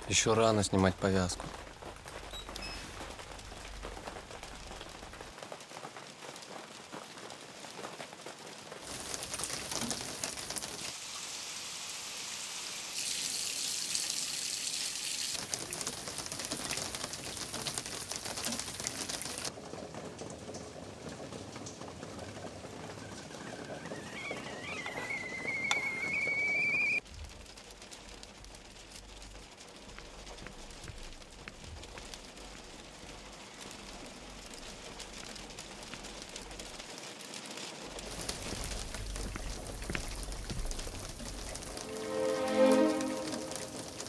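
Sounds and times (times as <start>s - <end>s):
food sizzling in a pan: 8.8s - 15.4s
kettle whistling: 22.8s - 27.0s.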